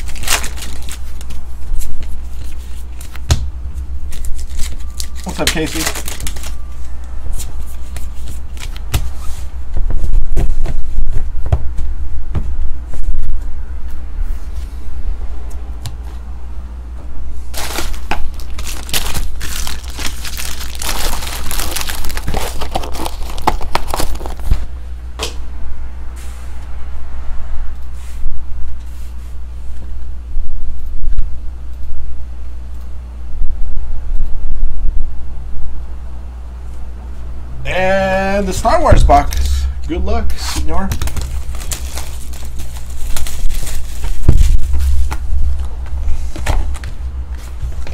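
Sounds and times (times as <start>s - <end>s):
packaging crinkling and tearing: 0.0s - 3.2s, 4.1s - 6.9s, 7.7s - 8.9s, 17.5s - 24.5s, 40.9s - 45.3s
steady low hum: 0.0s - 47.9s.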